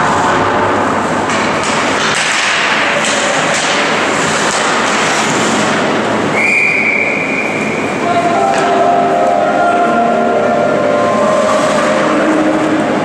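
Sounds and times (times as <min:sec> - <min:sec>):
sticks and puck clacking: 0:00.1 - 0:06.1, 0:08.4 - 0:09.8
skates scraping on ice: 0:01.6 - 0:06.1
referee's whistle: 0:06.4 - 0:07.6.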